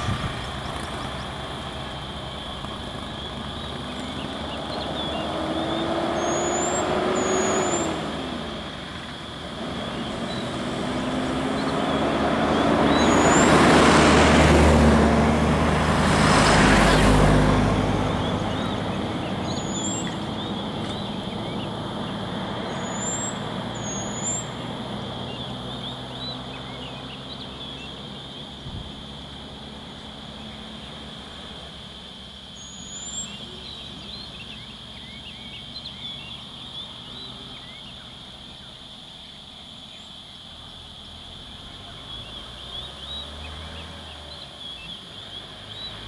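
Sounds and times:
bus engine idling: 0.0 - 5.3
birds chirping: 0.0 - 14.4, 16.2 - 40.5, 41.5 - 46.0.

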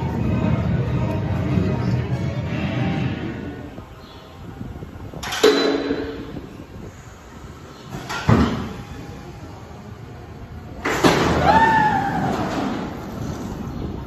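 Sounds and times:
roller coaster train rolling whine: 0.0 - 5.2, 11.4 - 14.0
sharp clunk: 5.2 - 6.2.

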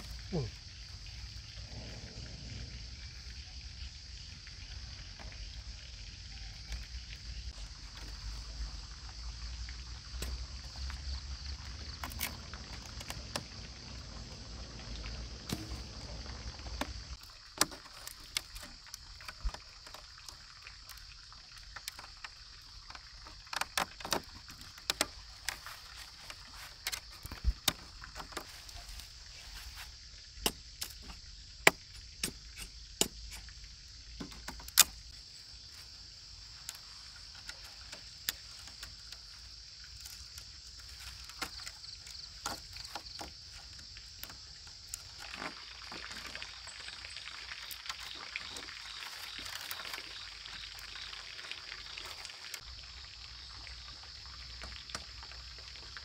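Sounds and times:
bamboo strips clicking: 12.0 - 13.5, 21.6 - 28.8, 34.2 - 35.2.

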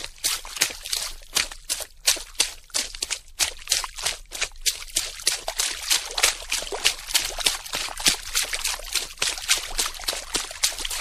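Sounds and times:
water splashing: 0.0 - 11.0.

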